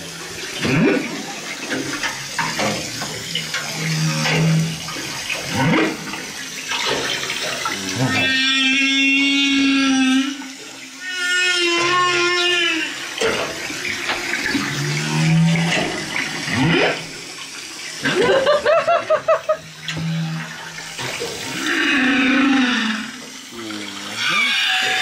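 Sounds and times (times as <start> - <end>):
pulsed whale calls: 7.6 - 13.1, 19.4 - 20.9, 21.5 - 25.0
whale song moans and whoops: 7.8 - 13.0.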